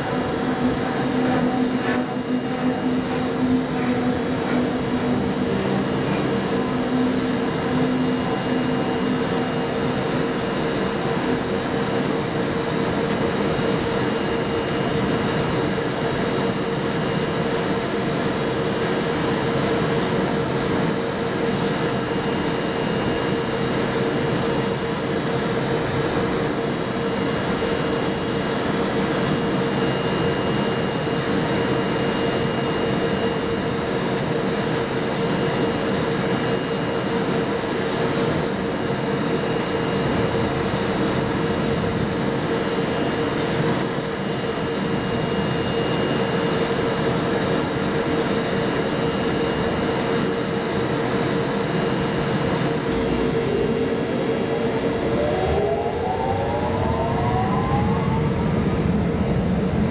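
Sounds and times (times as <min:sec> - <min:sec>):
locomotive blowers humming: 0:00.0 - 0:13.2.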